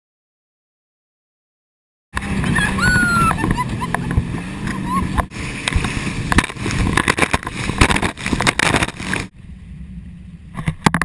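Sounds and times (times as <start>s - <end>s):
water rushing along boat hull: 2.2s - 11.0s
wind buffeting microphone: 2.2s - 11.0s.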